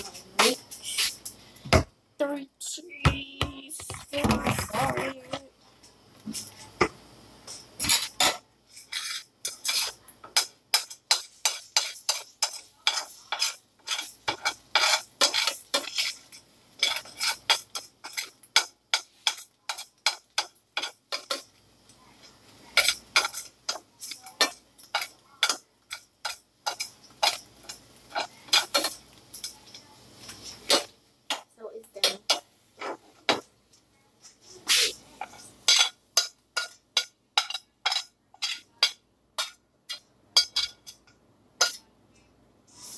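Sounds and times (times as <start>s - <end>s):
utensil scraping in pot: 7.8s - 21.4s, 34.3s - 36.8s.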